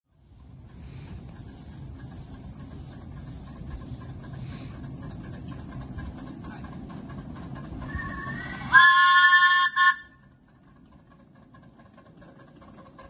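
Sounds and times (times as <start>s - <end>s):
steam locomotive whistle: 7.9s - 10.3s.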